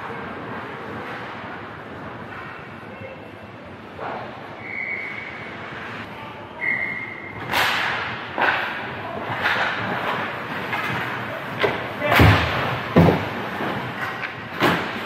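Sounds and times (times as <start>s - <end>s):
loud sharp hits on rink: 7.4s - 15.0s.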